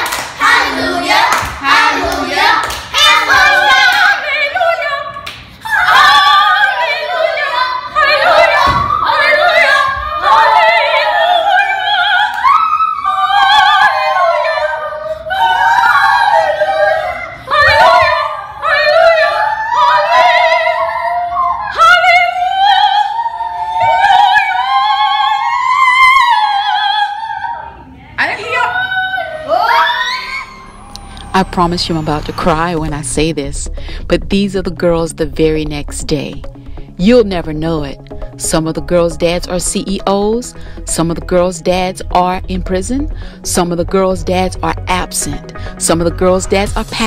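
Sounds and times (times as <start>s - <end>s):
girls singing operatically: 0.0s - 32.4s.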